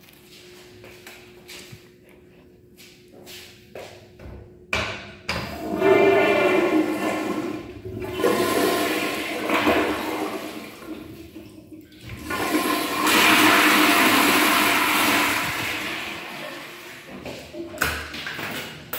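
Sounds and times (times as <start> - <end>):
toilet flushing: 5.4 - 18.1.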